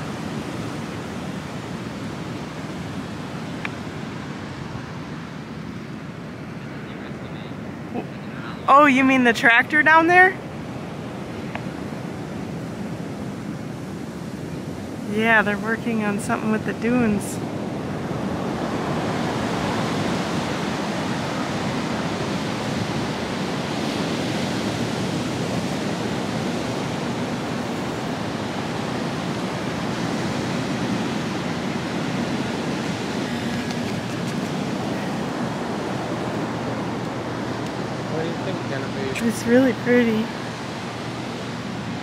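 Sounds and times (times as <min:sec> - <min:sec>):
ocean surf on beach: 0:00.0 - 0:42.0
wind: 0:00.0 - 0:42.0.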